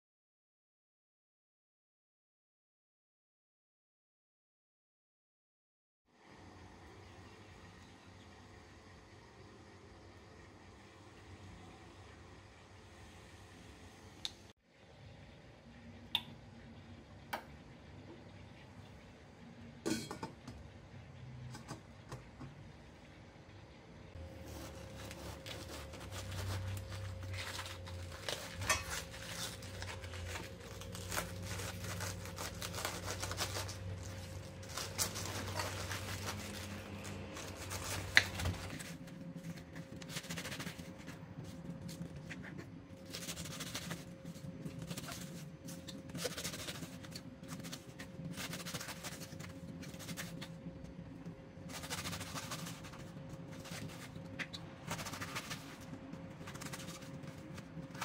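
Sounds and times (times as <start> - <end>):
knife slicing cabbage on board: 24.3 - 33.8, 51.7 - 58.0.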